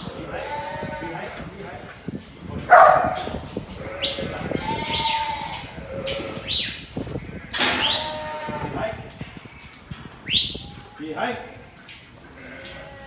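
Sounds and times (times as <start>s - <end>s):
sheep bleating: 0.2s - 1.2s, 3.8s - 6.5s, 7.2s - 9.6s, 12.4s - 13.0s.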